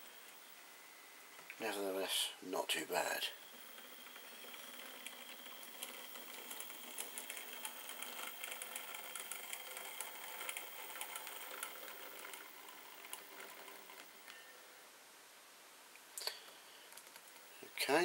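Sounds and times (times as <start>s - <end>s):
model train wheels clicking on rails: 3.1s - 14.4s
small electric motor whirring: 3.3s - 14.4s.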